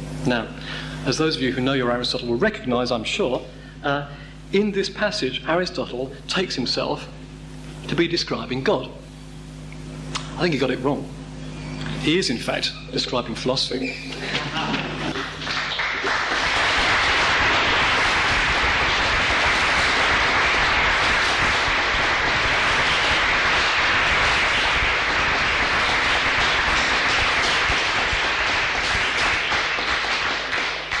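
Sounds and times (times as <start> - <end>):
audience applauding: 14.2 - 31.0.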